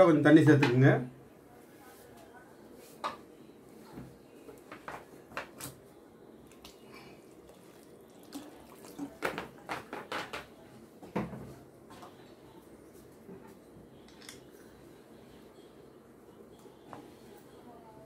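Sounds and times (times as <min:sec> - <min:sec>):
low simmering hiss: 0:00.0 - 0:09.8
curry bubbles popping: 0:06.5 - 0:10.2.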